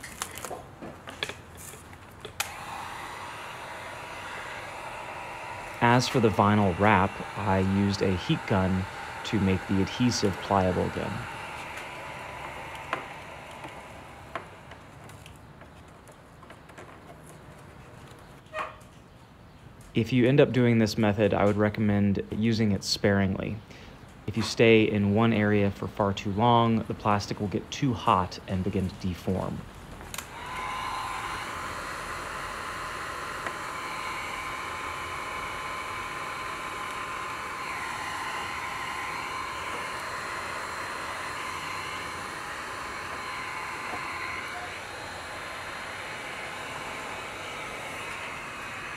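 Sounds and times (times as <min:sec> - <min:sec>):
vinyl wrap peeling off plastic: 0:00.0 - 0:00.6
heat gun blowing: 0:01.2 - 0:15.5, 0:30.0 - 0:48.9.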